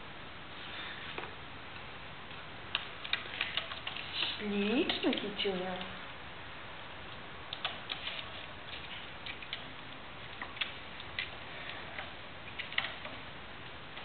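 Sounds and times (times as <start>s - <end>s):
faint background hiss: 0.0s - 14.0s
kitten claws scratching: 7.5s - 9.7s.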